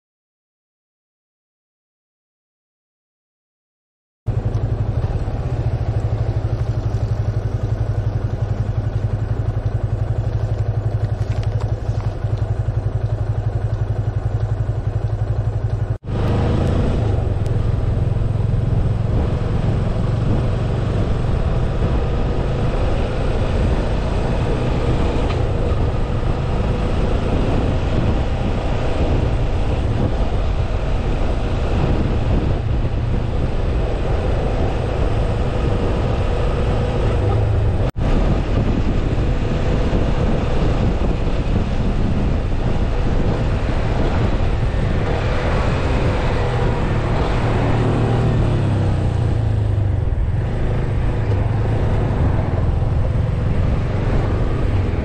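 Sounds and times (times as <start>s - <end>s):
motorcycle engine running: 4.3s - 55.0s.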